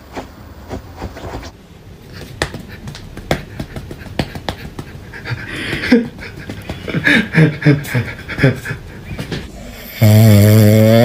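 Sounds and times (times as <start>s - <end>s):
cat tapping at hand: 2.2s - 4.9s.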